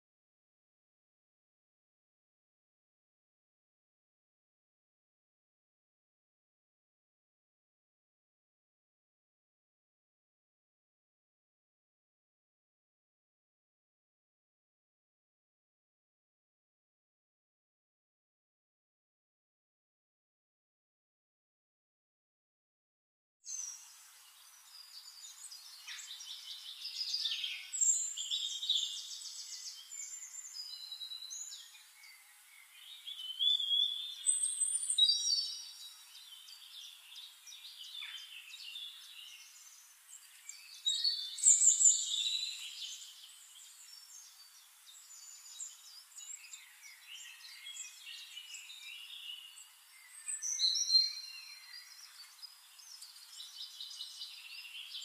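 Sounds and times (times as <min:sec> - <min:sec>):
songbirds chirping and trilling: 0:23.5 - 0:55.0.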